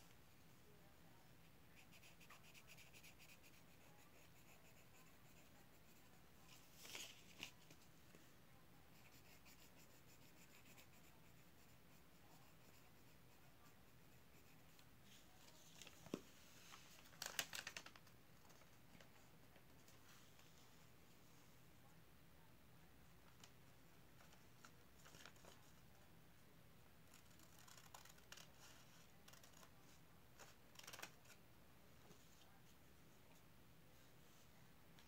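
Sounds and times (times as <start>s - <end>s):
paper rustling: 6.5s - 7.8s, 15.1s - 18.7s.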